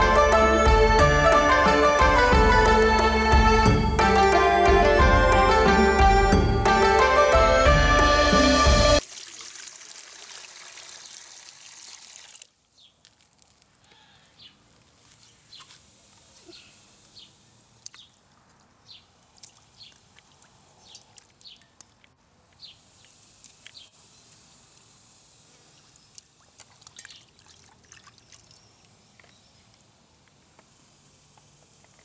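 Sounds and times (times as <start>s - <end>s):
water splashing in a steel bowl: 9.0s - 13.3s, 26.1s - 28.9s.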